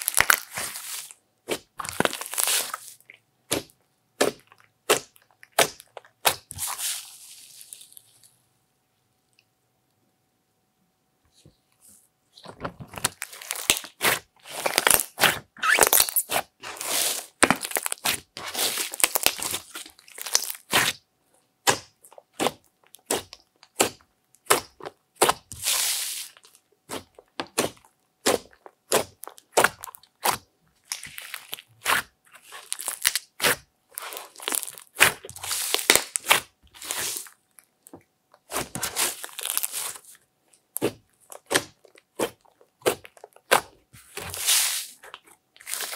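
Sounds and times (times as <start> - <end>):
slime crackling and popping: 0.0 - 1.0, 1.8 - 7.0, 13.0 - 21.0, 21.6 - 37.4, 38.4 - 43.7
slime squelching: 0.0 - 8.3, 12.4 - 21.0, 21.6 - 45.9.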